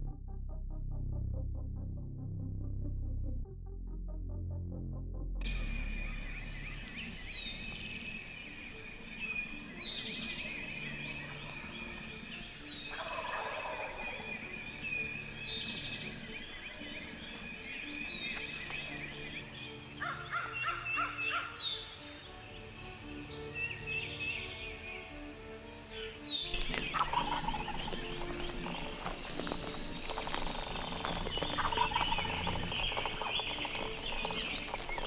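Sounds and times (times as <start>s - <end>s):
high songbird chirps: 5.4s - 35.0s
wild turkey gobbling: 9.3s - 19.4s, 20.0s - 21.6s, 26.5s - 35.0s.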